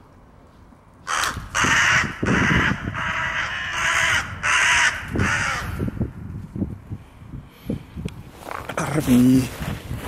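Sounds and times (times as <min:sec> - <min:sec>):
crow cawing harshly: 0:01.0 - 0:06.0.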